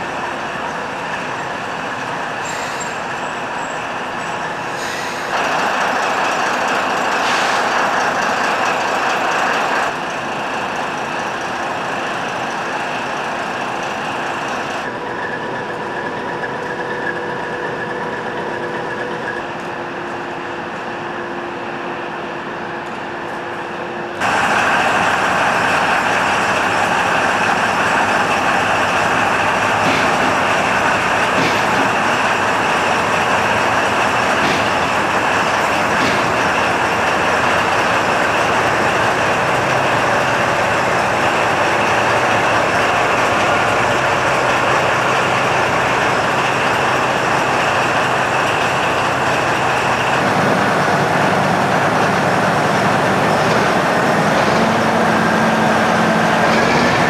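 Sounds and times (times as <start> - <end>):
diesel locomotive idling: 0.0 - 57.0.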